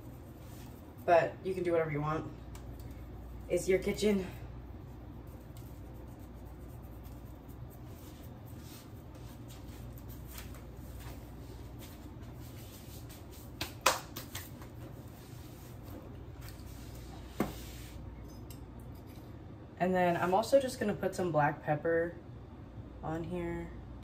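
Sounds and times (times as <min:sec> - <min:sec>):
low room hum: 0:00.0 - 0:24.0.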